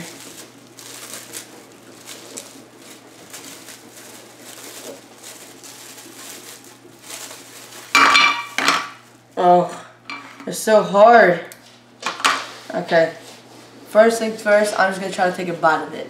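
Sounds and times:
wrapping rustling and crackling: 0:00.0 - 0:09.6.

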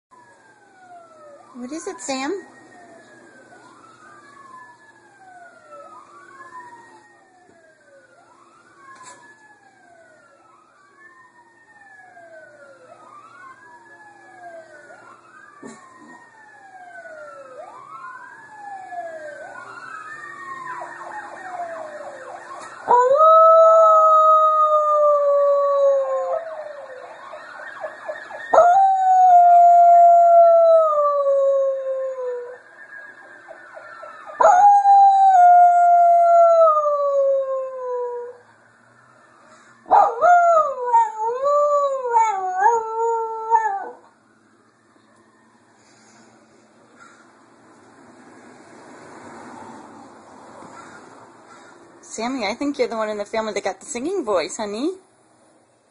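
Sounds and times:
emergency siren wailing: 0:00.1 - 0:53.2
dog howling: 0:39.9 - 0:44.1.

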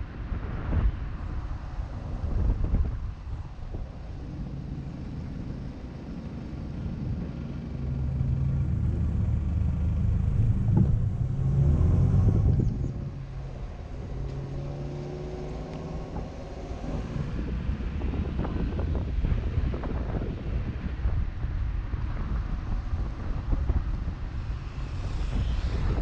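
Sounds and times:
road noise: 0:00.0 - 0:26.0
car engine accelerating: 0:01.9 - 0:20.4.

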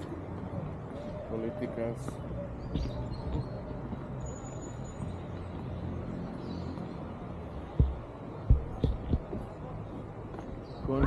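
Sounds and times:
dull low thumps: 0:07.6 - 0:10.0.

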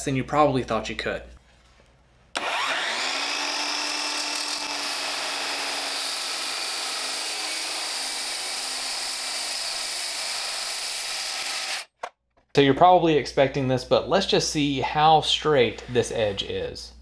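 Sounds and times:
circular saw cutting board: 0:02.4 - 0:11.9.

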